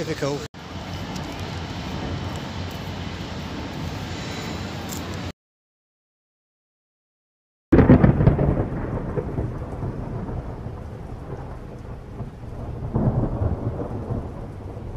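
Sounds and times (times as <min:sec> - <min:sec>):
rain hissing: 0:00.0 - 0:05.3
rolling thunder rumble: 0:00.6 - 0:04.4, 0:07.7 - 0:14.9
loud thunderclap: 0:07.7 - 0:14.9.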